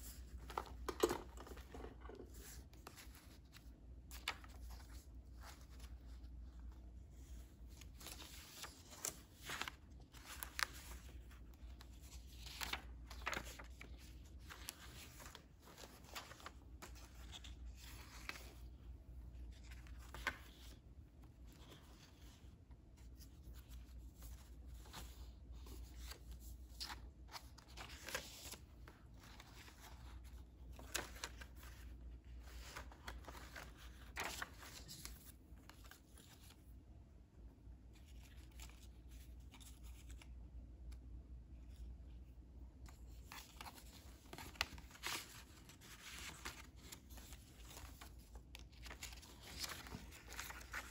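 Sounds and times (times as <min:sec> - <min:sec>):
paper rustling and flicking: 0:07.7 - 0:18.8, 0:23.4 - 0:36.6, 0:43.0 - 0:50.9.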